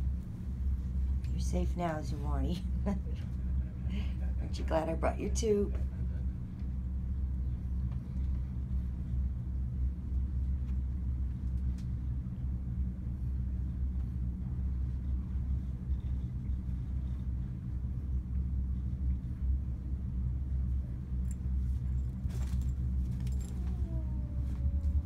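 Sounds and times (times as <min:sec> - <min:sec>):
boat engine drone: 0:00.0 - 0:25.0.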